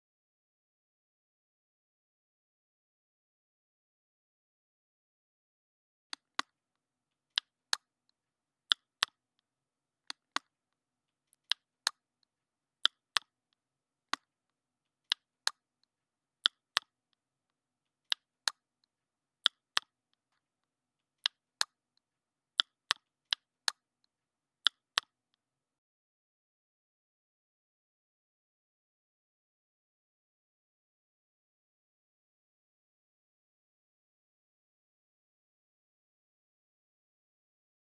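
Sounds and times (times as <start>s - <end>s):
sharp dry clicks in pairs: 8.7s - 9.2s, 12.8s - 13.3s, 16.4s - 16.9s, 19.5s - 20.0s, 22.6s - 23.8s.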